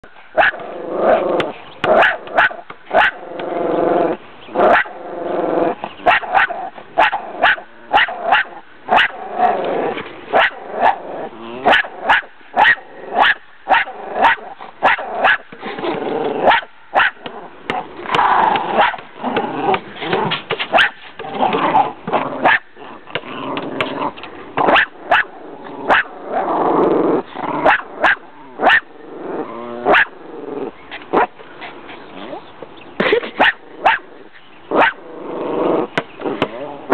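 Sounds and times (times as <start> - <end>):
small dogs barking: 0.4 - 3.2, 4.6 - 5.0, 6.0 - 9.2, 10.3 - 11.0, 11.6 - 15.5, 16.4 - 17.9, 18.6 - 19.1, 20.7 - 21.0, 22.4 - 22.7, 24.6 - 26.2, 27.6 - 28.9, 29.8 - 30.2, 33.0 - 34.1, 34.7 - 35.0.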